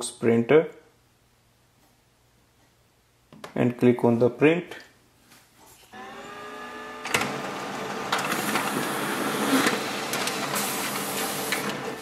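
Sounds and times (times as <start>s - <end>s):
paper feeding whir: 5.9s - 12.0s
printer motor whine: 6.0s - 12.0s
printer clicks: 7.0s - 12.0s.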